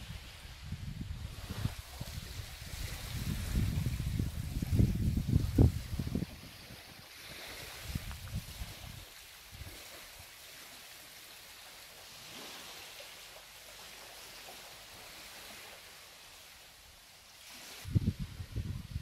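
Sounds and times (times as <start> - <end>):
wind buffeting microphone: 0.0 - 9.8, 17.8 - 19.0.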